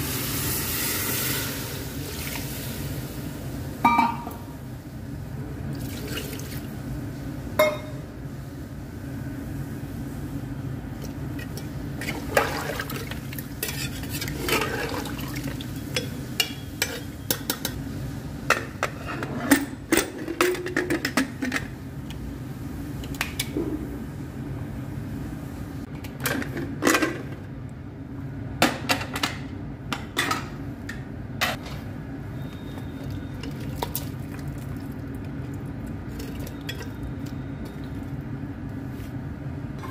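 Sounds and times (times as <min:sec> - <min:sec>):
metal utensils clinking on pot: 0:13.6 - 0:14.8, 0:15.9 - 0:17.8.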